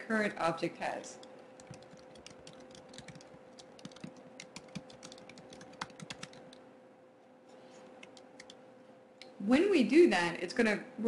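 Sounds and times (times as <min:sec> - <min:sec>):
keyboard typing: 0:01.2 - 0:06.6, 0:08.0 - 0:08.6.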